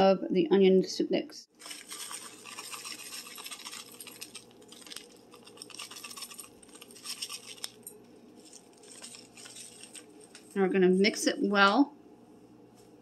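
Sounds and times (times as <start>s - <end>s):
grains pattering into glass bowl: 1.6s - 10.6s
paper packet rustling: 1.6s - 10.6s.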